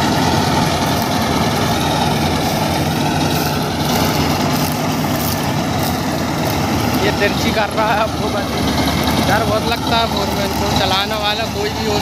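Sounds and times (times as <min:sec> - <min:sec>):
combine harvester engine drone: 0:00.0 - 0:12.0.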